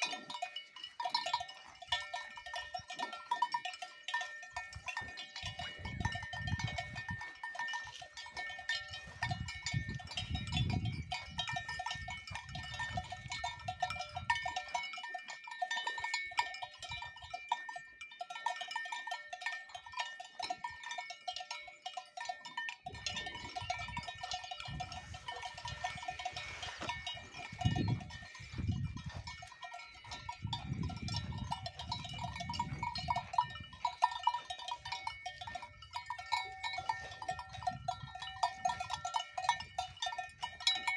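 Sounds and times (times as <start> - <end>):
cowbells clanking: 0.0 - 40.9.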